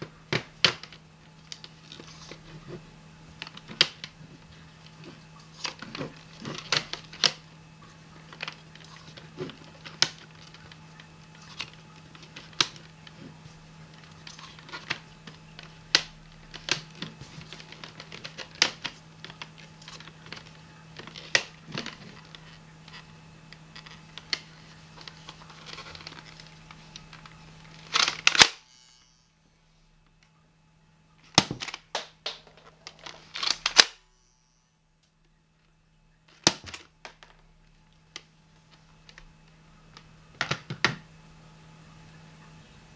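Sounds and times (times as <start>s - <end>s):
plastic toy clicks and knocks: 27.8s - 28.6s, 31.3s - 34.0s.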